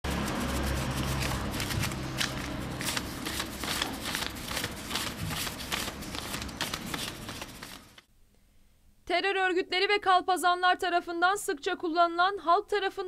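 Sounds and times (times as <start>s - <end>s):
banknotes being counted by hand: 0.0s - 8.1s.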